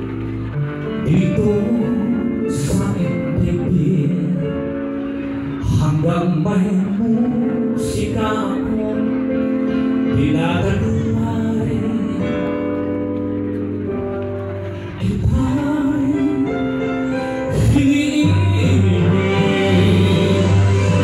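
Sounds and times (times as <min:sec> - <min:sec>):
sustained instrumental backing: 0:00.0 - 0:21.0
person singing long notes: 0:15.0 - 0:21.0.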